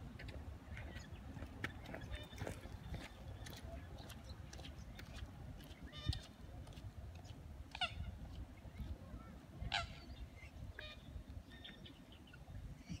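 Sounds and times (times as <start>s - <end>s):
waterbirds calling: 0.1s - 13.0s.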